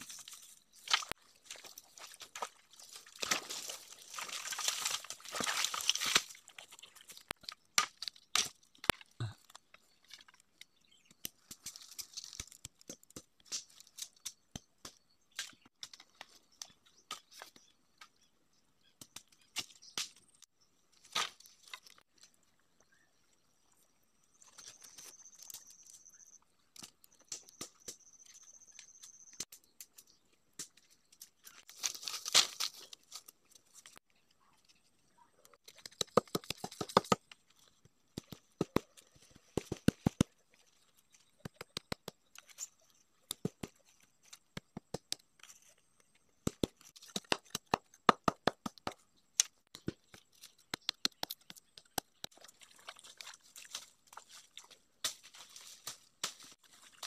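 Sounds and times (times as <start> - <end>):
bamboo leaves rustling: 0.0 - 8.2, 11.4 - 14.3, 31.2 - 34.0, 52.4 - 57.0
bamboo cracking and snapping: 0.0 - 18.1, 18.9 - 22.3, 26.6 - 28.8, 29.4 - 34.1, 35.5 - 57.0.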